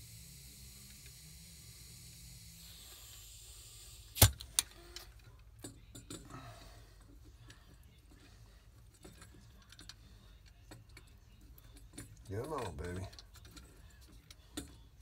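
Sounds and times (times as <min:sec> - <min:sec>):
light metal clinks: 0:05.2 - 0:14.8.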